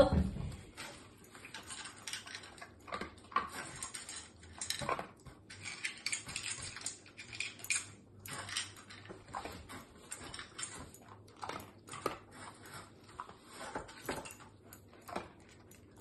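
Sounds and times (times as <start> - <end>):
metal tin clinking on tile floor: 5.6 - 9.1.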